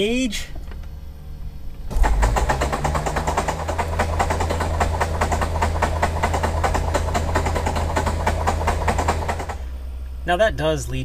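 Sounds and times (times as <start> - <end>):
starter motor cranking engine: 1.9 - 9.8.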